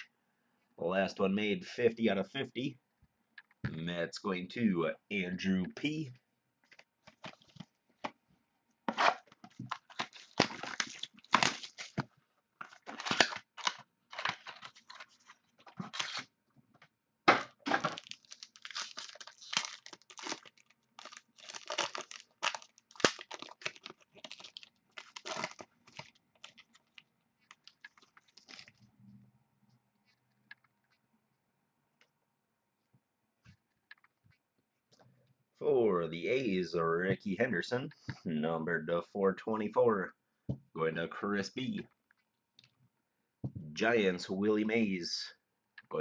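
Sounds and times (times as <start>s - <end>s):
wrapper crinkling and rustling: 9.2s - 16.3s, 17.7s - 28.8s.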